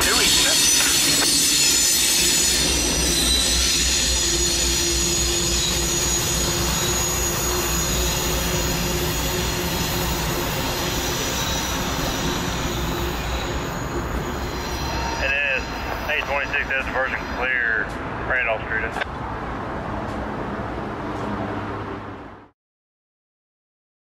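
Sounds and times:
train wheels squealing: 0.0s - 17.8s.

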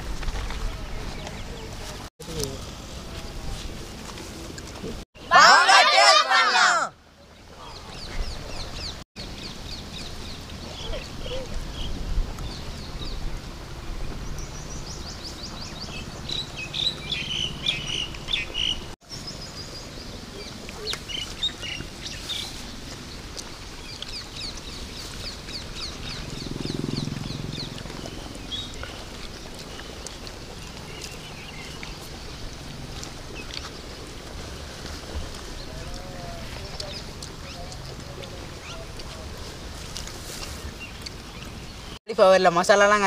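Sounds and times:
small birds chirping: 14.1s - 34.2s, 35.3s - 39.2s, 40.4s - 42.0s.

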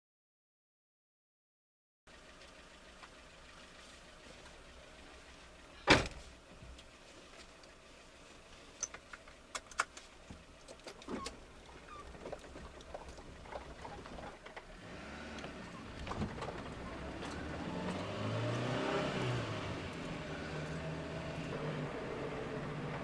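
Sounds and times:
van engine running: 2.1s - 23.0s
seatbelt buckle clicks: 8.8s - 10.1s.

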